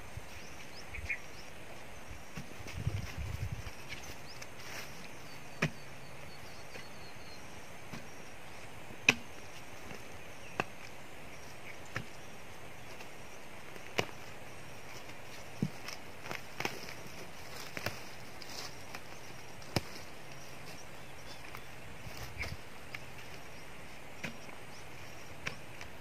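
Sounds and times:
hand tool chopping roots and soil: 5.6s - 5.8s, 7.9s - 8.2s, 9.0s - 11.0s, 11.8s - 12.2s, 24.2s - 24.6s, 25.4s - 26.0s.

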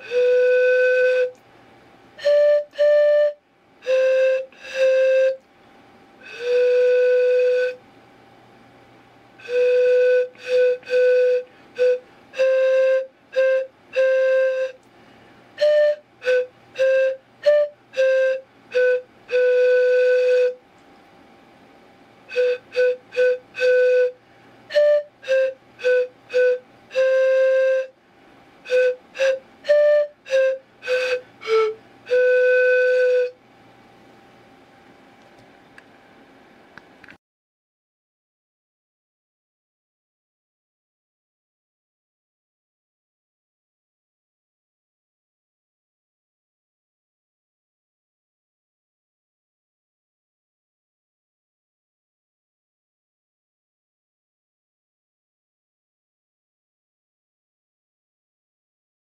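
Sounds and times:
pan pipes melody: 0.0s - 1.3s, 2.2s - 5.4s, 6.2s - 7.8s, 9.4s - 14.8s, 15.6s - 20.6s, 22.3s - 27.9s, 28.7s - 33.4s.

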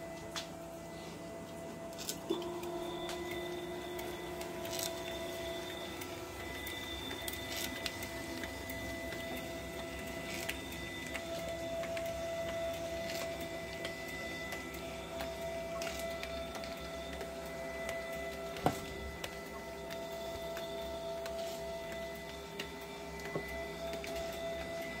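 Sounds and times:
electric motors whining: 0.0s - 25.0s.

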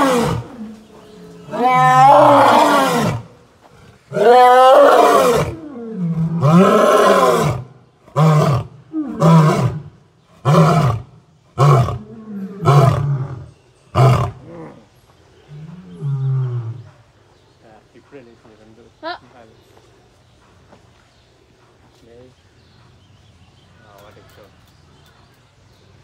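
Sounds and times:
lion roaring: 0.0s - 14.9s.

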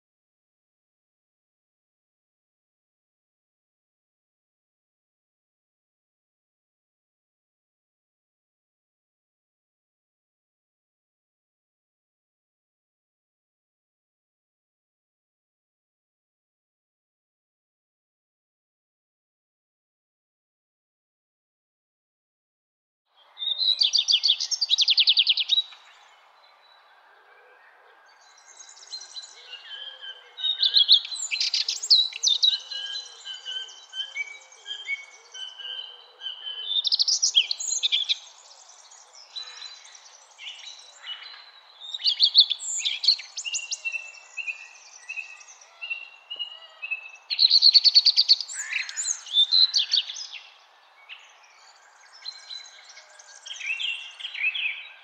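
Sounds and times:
quiet bird chirps: 23.1s - 55.0s
songbird trilling: 41.9s - 50.4s.

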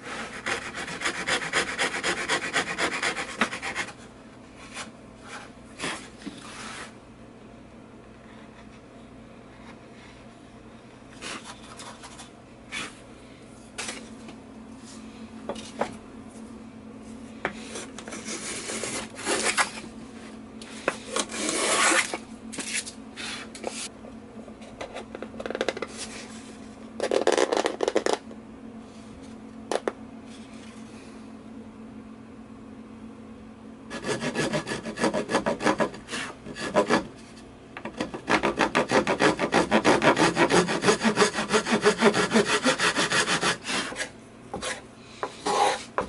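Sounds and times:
tool rubbing over wood: 0.0s - 4.0s, 33.9s - 37.0s, 38.3s - 46.0s
chisel cuts and scrapes on wood: 0.1s - 4.0s, 33.9s - 37.1s, 37.9s - 46.0s.

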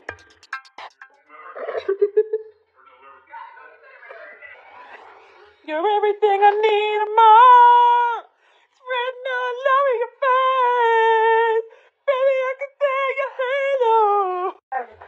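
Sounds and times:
woman singing: 5.7s - 14.6s.

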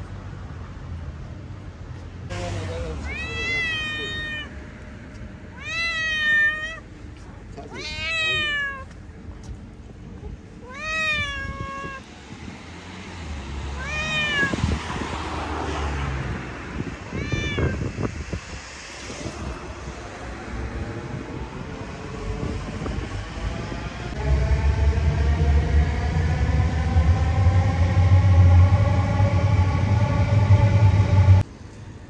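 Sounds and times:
cat meowing: 2.8s - 4.6s, 5.5s - 6.8s, 7.6s - 8.9s, 10.5s - 12.1s, 13.7s - 14.8s, 16.8s - 17.9s.

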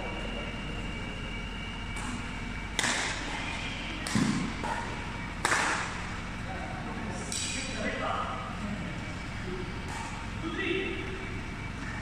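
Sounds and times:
rackets hitting shuttlecock: 1.9s - 6.2s, 7.3s - 7.7s, 9.8s - 10.4s.

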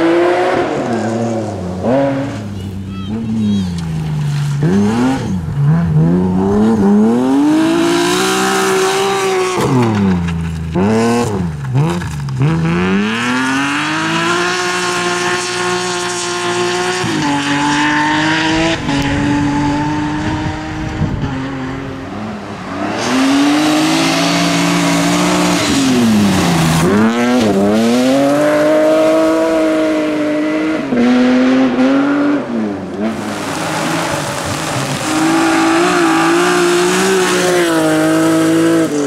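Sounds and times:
rally car engine at full throttle: 0.0s - 39.0s
tyre noise on gravel: 8.2s - 14.0s, 33.1s - 39.0s.

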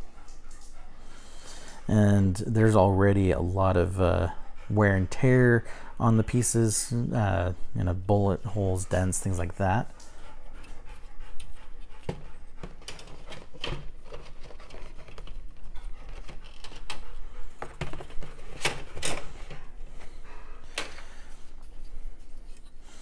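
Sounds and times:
plastic rustling: 12.8s - 20.1s.

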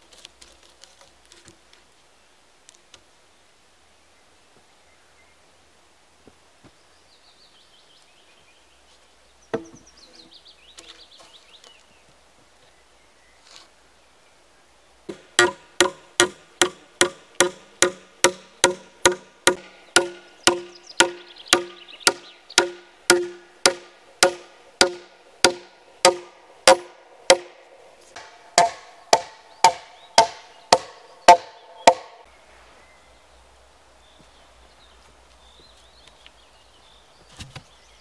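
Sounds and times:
hammer blows on log: 15.1s - 27.6s, 28.2s - 32.2s.

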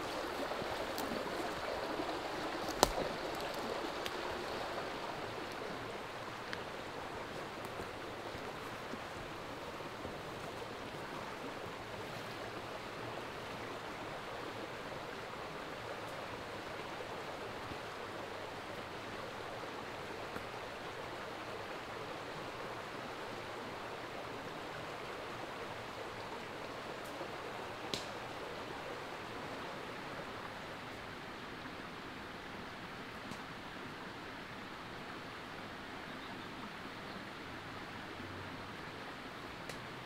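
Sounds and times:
stream running: 0.0s - 40.0s.

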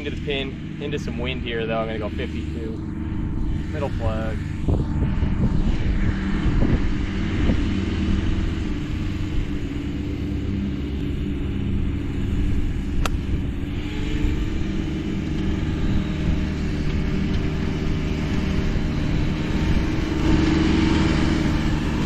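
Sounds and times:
ride-on mower engine running: 0.0s - 22.0s
wind buffeting microphone: 0.0s - 22.0s
golf club striking ball: 13.0s - 13.4s.

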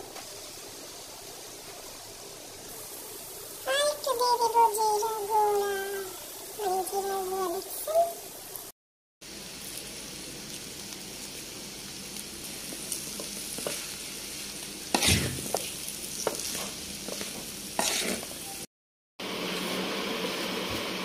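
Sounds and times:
food sizzling in a frying pan: 0.0s - 21.0s
spatula scraping and knocking pan: 13.0s - 14.0s, 14.9s - 18.4s.

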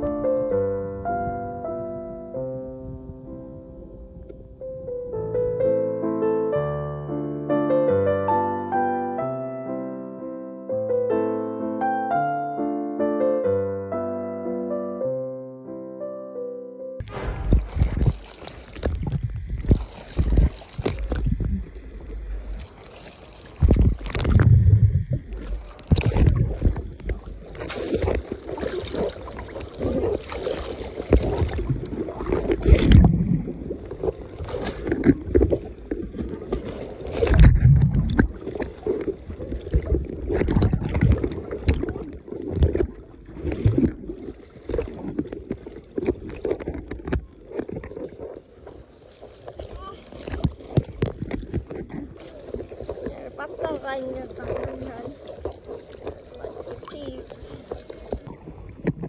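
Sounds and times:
water splashing and sloshing: 0.0s - 0.6s, 17.0s - 59.0s
wind buffeting microphone: 17.0s - 22.6s, 23.6s - 27.4s.

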